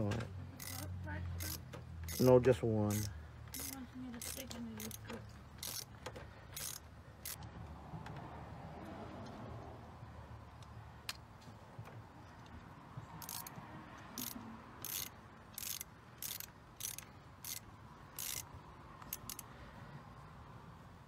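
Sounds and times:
ratcheting wrench clicking: 0:00.6 - 0:02.3, 0:02.9 - 0:07.4, 0:13.2 - 0:13.6, 0:14.2 - 0:19.5.

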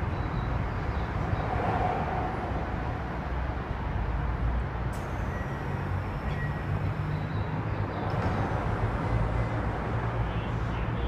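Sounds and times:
electric train humming and hissing: 0:04.9 - 0:07.4.

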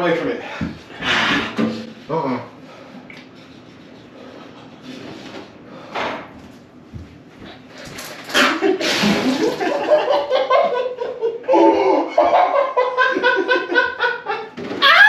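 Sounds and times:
young men laughing: 0:08.6 - 0:14.6.

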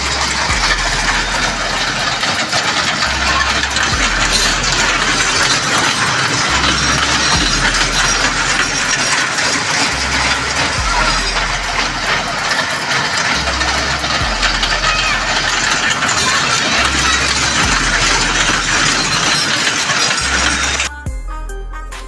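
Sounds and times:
low two-pitch hum: 0:00.0 - 0:09.1, 0:09.8 - 0:12.6, 0:13.2 - 0:15.8
din of voices: 0:00.0 - 0:21.0
mini train engine humming: 0:00.0 - 0:21.1.

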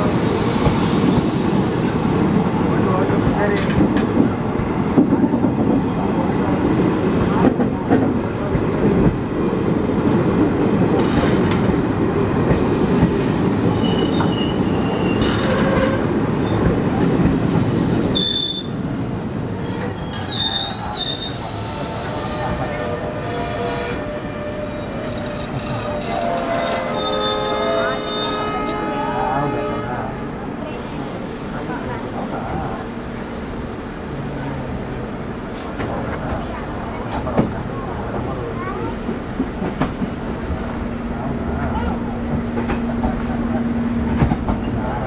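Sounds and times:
train rumbling on rails: 0:00.0 - 0:45.0
wheel squeal: 0:13.7 - 0:28.4.

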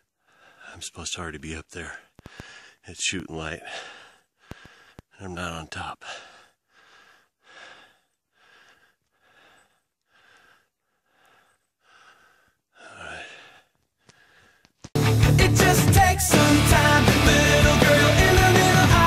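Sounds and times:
man breathing hard: 0:00.0 - 0:00.8, 0:02.0 - 0:02.8, 0:03.6 - 0:05.2, 0:06.0 - 0:14.8
rock music: 0:15.0 - 0:19.0.

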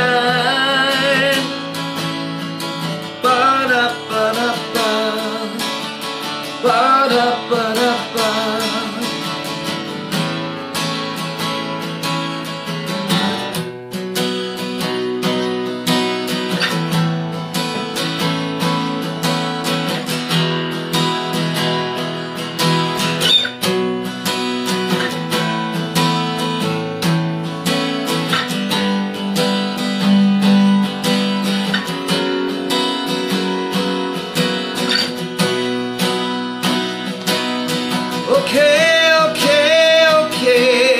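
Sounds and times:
acoustic guitar strumming: 0:00.0 - 0:40.9.

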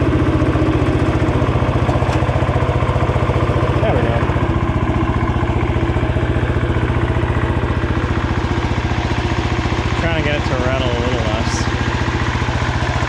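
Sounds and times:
garden tractor engine running: 0:00.0 - 0:13.0
hood and fenders rattling: 0:00.9 - 0:13.0.

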